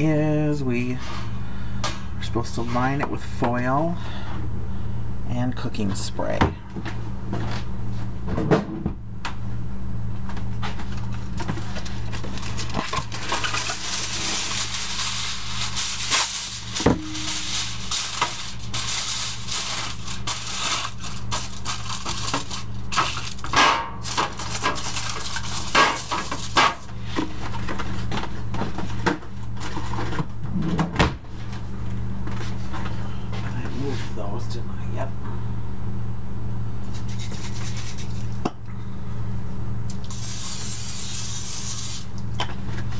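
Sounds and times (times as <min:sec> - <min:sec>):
low electrical hum: 0:00.0 - 0:42.9
aluminium foil tearing and crinkling: 0:11.4 - 0:26.9.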